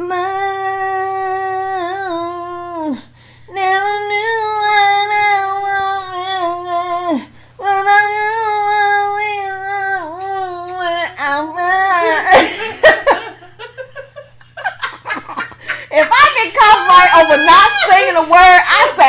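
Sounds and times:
woman singing long notes: 0.0 - 12.5.

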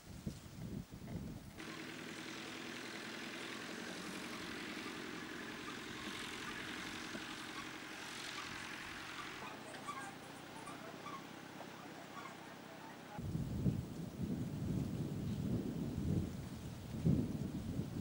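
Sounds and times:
wind buffeting microphone: 0.0 - 1.6, 3.8 - 18.0
tractor engine running: 1.6 - 13.2.

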